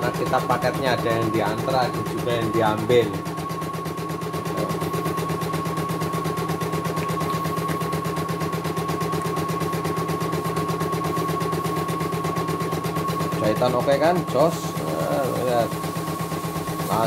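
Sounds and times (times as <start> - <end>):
embroidery machine stitching: 0.0 - 5.3
motor hum with high whine: 0.0 - 17.0.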